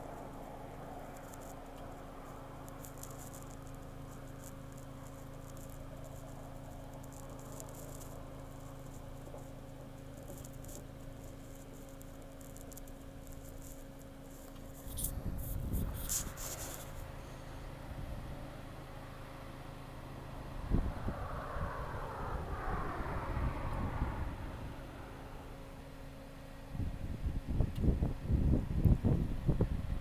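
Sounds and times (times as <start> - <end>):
faint ticks and crackles: 0.0 - 17.2
steady low hum: 0.0 - 30.0
low rumble: 15.0 - 26.1.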